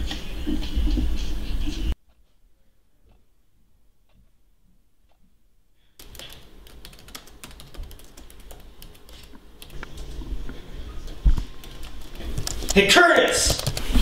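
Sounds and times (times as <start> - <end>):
fast typing on laptop keyboard: 6.0 - 10.1, 11.0 - 14.0.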